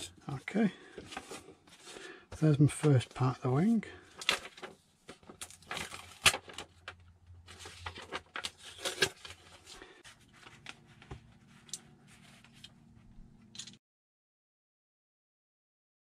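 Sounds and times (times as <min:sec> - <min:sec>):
paper rustling and sliding: 0:00.9 - 0:02.1, 0:07.4 - 0:12.8.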